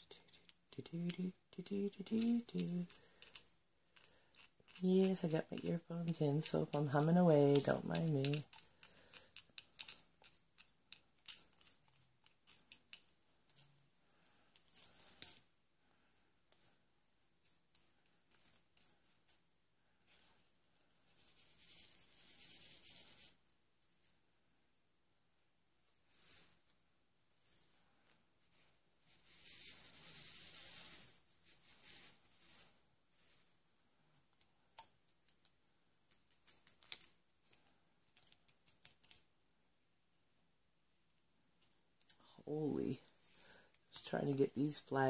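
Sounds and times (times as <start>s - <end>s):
seed beads rustling in tray: 0.0s - 13.8s.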